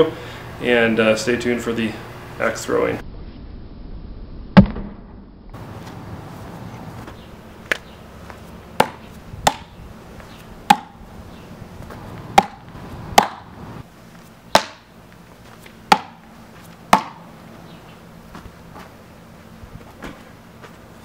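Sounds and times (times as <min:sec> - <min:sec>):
hatchet striking wooden stump: 0:08.8 - 0:09.7, 0:10.7 - 0:11.0, 0:12.4 - 0:12.6, 0:13.2 - 0:13.4, 0:14.5 - 0:14.8, 0:15.9 - 0:16.2, 0:16.9 - 0:17.2.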